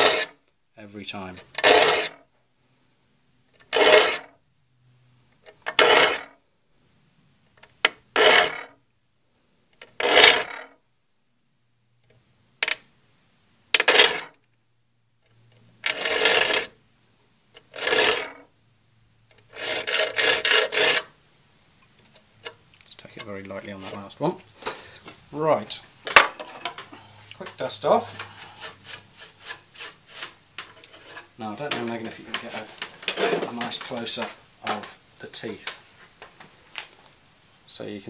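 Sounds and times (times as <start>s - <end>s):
file rasping on saw teeth: 0.0s - 0.4s, 1.5s - 2.2s, 3.6s - 4.3s, 5.7s - 6.3s, 8.1s - 8.7s, 10.0s - 10.6s, 15.8s - 16.7s, 17.7s - 18.4s, 19.4s - 21.1s, 28.0s - 31.3s.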